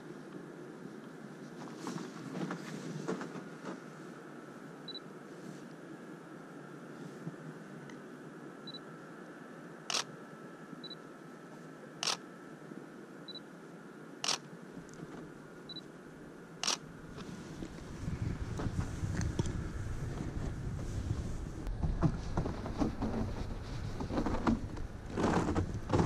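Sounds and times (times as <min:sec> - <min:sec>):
camera focus beep: 0:09.9 - 0:10.1, 0:16.6 - 0:16.8
camera shutter clack: 0:16.6 - 0:16.8.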